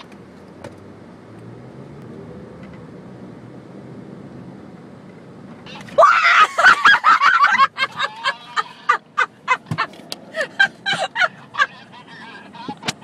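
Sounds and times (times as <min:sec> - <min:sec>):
woman shrieking and laughing: 0:06.0 - 0:11.8.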